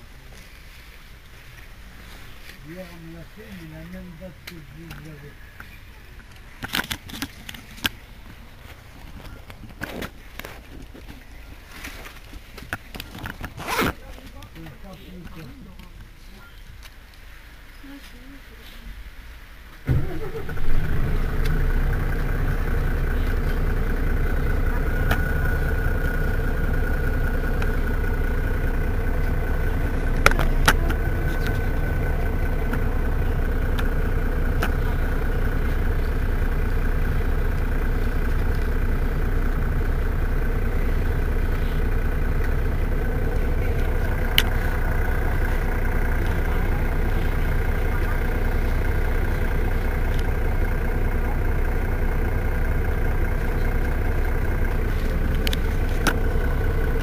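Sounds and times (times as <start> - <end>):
bus engine idling: 0.0 - 57.0
sharp clicks: 43.9 - 46.5.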